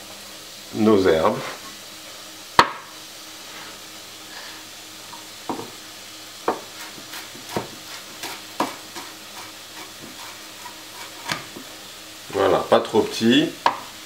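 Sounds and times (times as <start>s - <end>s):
mushrooms sizzling in a pan: 0.0s - 14.0s
knife chopping on wooden board: 2.6s - 2.9s, 5.5s - 5.7s, 6.4s - 11.6s, 13.6s - 13.9s.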